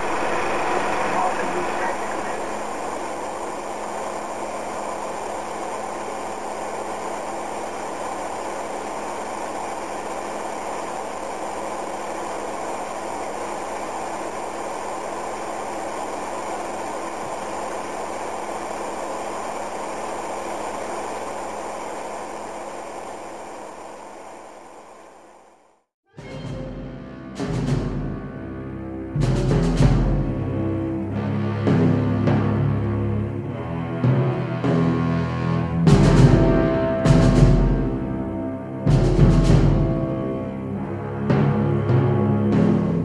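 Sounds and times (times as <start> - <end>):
faint low hum: 0.0 - 25.8
film projector whirring: 0.0 - 25.8, 38.9 - 40.2.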